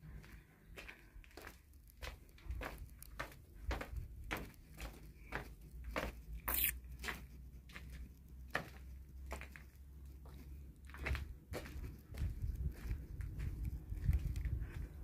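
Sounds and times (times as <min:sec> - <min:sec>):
footsteps walking: 0:00.0 - 0:15.0
shoe scuff: 0:06.5 - 0:06.9.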